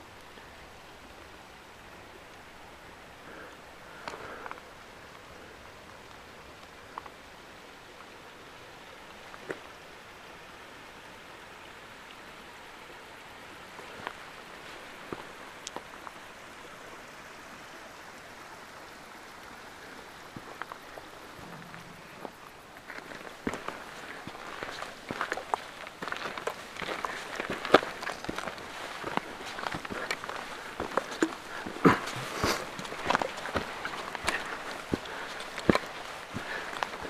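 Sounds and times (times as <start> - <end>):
stream water rushing: 0.0 - 37.0.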